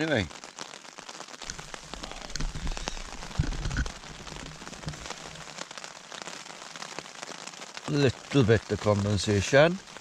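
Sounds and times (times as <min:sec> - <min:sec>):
light steady hiss: 0:00.0 - 0:10.0
water drops tapping tent fabric: 0:01.4 - 0:05.6
thumps and rustles of movement: 0:01.5 - 0:05.2.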